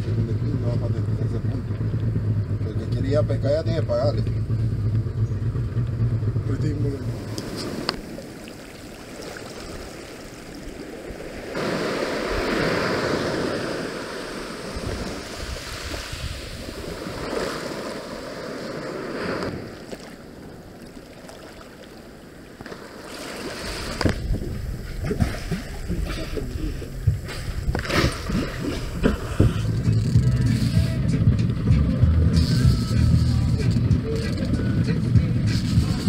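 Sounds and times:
waves washing on shore: 6.6 - 29.9
wind buffeting microphone: 9.2 - 19.8, 23.6 - 32.3.

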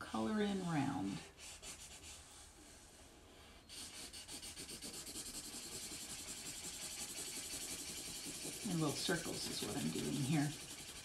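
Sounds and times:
felt-tip pen scratching on paper: 3.7 - 11.0.

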